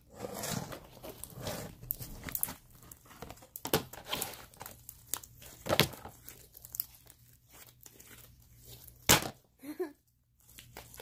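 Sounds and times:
slime squelching: 0:01.0 - 0:09.1.

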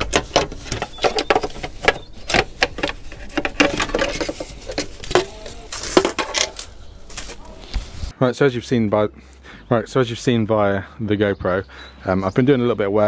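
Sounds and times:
hand tools clicking and clattering: 0:00.0 - 0:07.6.

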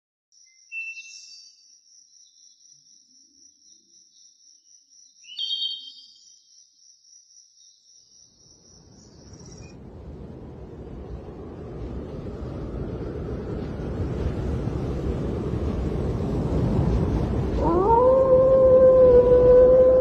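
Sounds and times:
cricket trill: 0:00.4 - 0:09.8
low rushing noise: 0:09.6 - 0:20.0.

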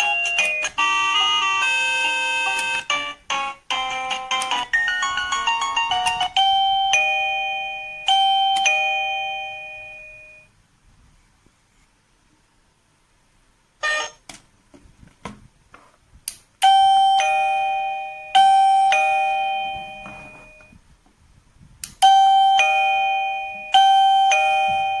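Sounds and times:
doorbell ding-dong chime: 0:03.8 - 0:10.5, 0:16.6 - 0:20.8, 0:22.0 - 0:25.0.

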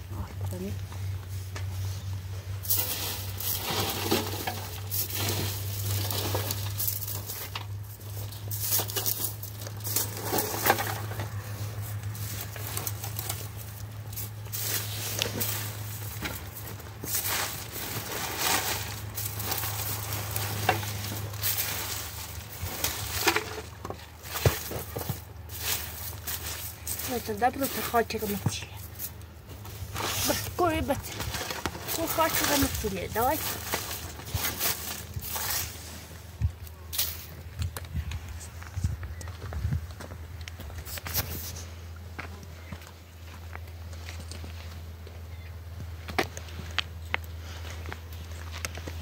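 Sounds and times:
low steady hum: 0:00.0 - 0:49.0
objects clattering and knocking: 0:02.6 - 0:35.8.

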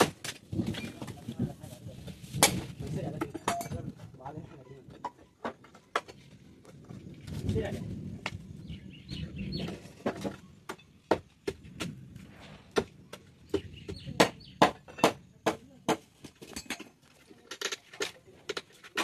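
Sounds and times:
crowbar knocking on wooden boards: 0:13.5 - 0:16.4.

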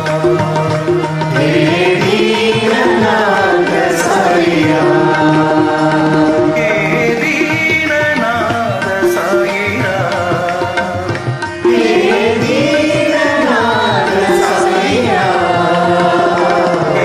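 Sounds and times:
devotional song: 0:00.0 - 0:17.0
held drone notes: 0:00.0 - 0:17.0
tabla: 0:00.0 - 0:17.0
gliding melody line: 0:01.4 - 0:09.6.

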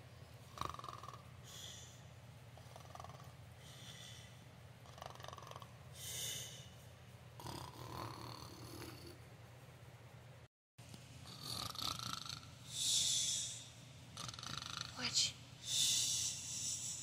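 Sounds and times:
steady low hum: 0:00.0 - 0:17.0
person pretend snoring: 0:00.5 - 0:01.8, 0:04.8 - 0:06.6, 0:07.4 - 0:09.2, 0:11.2 - 0:13.0, 0:14.2 - 0:15.0.

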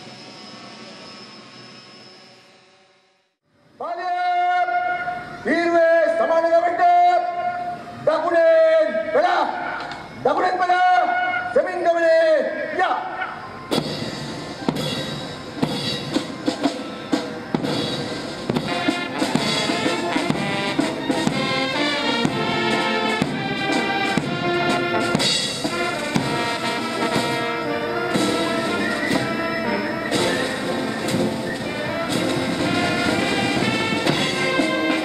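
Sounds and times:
brass band music: 0:13.0 - 0:35.0
drums: 0:13.2 - 0:35.0.

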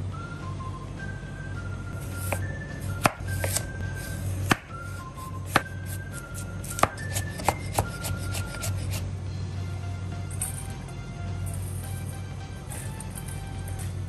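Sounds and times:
background music: 0:00.0 - 0:14.0
knife chopping on wooden board: 0:02.0 - 0:09.0.

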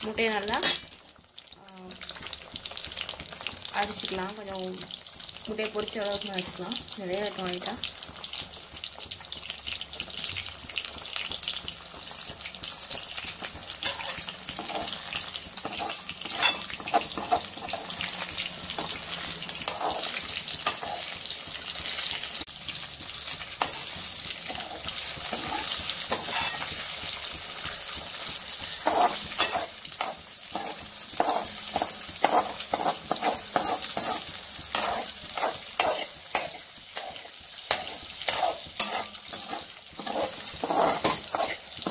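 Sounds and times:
eggs sizzling in hot oil: 0:00.0 - 0:41.9
spatula scraping and tapping pan: 0:07.6 - 0:22.2, 0:23.0 - 0:41.9.

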